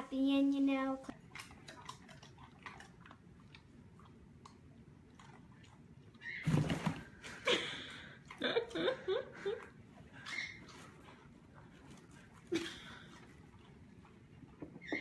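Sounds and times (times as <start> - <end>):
person laughing: 7.4 - 9.7, 12.5 - 13.1.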